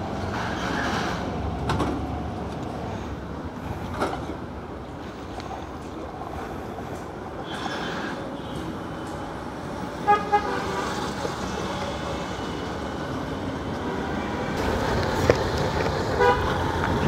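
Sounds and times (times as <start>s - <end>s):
street traffic noise: 0.0s - 17.0s
vehicle horn tooting: 16.2s - 16.6s.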